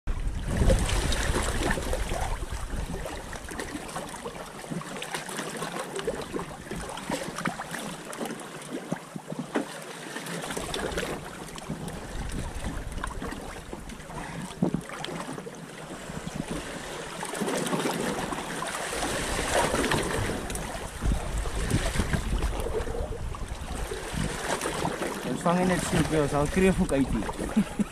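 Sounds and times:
wind buffeting microphone: 0.1s - 3.8s, 10.7s - 14.9s, 18.1s - 27.9s
water splashing against boat: 0.1s - 27.9s.

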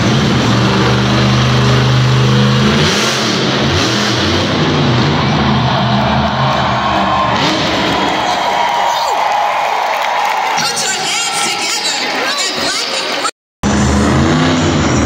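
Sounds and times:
truck engine revving hard: 0.0s - 8.7s, 13.6s - 15.0s.

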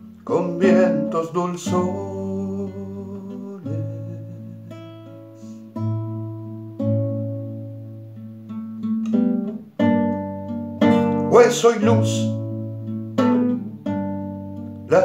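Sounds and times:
classical guitar chords: 0.0s - 15.0s
man singing: 0.1s - 5.2s, 10.8s - 12.5s, 14.8s - 15.0s.

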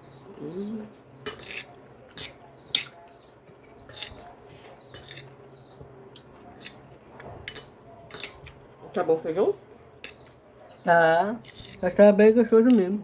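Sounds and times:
cutlery clinking on glass bowls: 1.2s - 3.0s, 7.4s - 8.6s.

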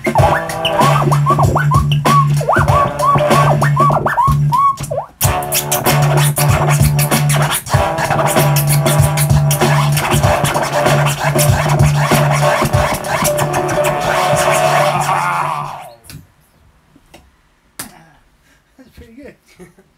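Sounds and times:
music beat: 0.0s - 15.9s
vinyl record scratching: 0.0s - 16.1s.

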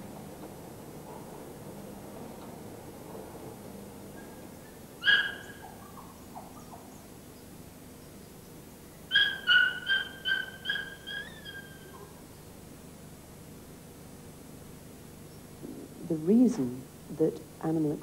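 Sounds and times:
puppy whimpering and yelping: 9.1s - 12.1s.

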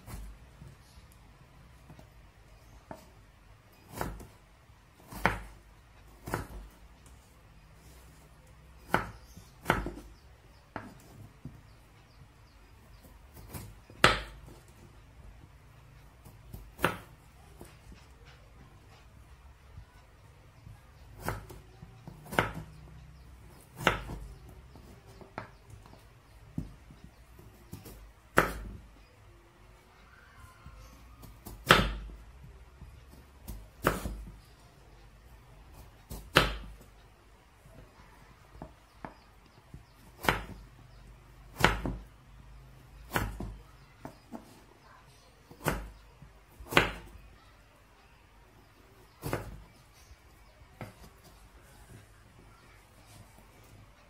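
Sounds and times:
knife chopping on cutting board: 5.0s - 5.6s, 6.2s - 6.7s, 8.9s - 11.1s, 22.2s - 22.7s, 31.2s - 32.1s, 33.4s - 34.4s, 41.6s - 42.1s, 43.0s - 44.6s.

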